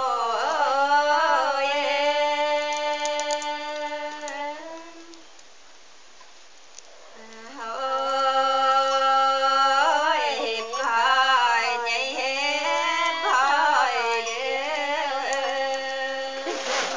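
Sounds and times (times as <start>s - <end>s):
woman singing folk song: 0.0s - 5.4s, 7.2s - 16.9s.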